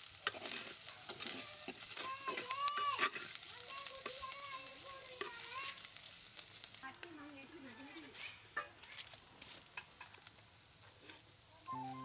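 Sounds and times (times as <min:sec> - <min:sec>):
fish sizzling in oil: 0:00.0 - 0:12.0
wooden spoon scraping a pot: 0:00.1 - 0:04.3.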